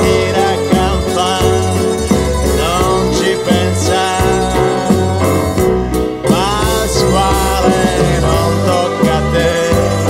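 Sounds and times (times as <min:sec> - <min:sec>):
melody over bass beat: 0:00.0 - 0:08.8.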